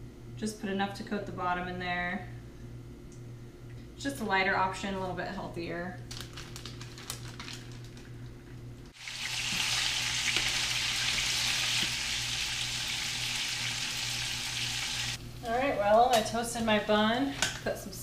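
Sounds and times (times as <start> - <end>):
fish sizzling in a pan: 9.0 - 15.2.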